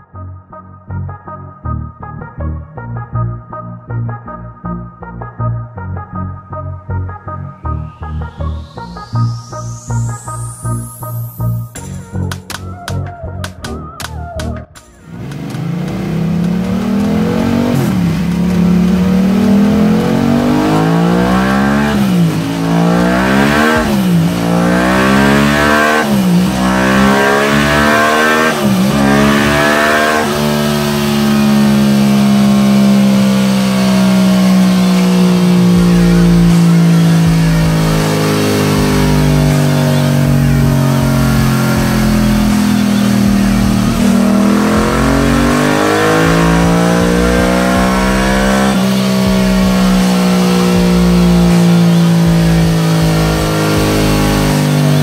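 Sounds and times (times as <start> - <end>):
motorcycle engine revving: 14.9 - 55.0.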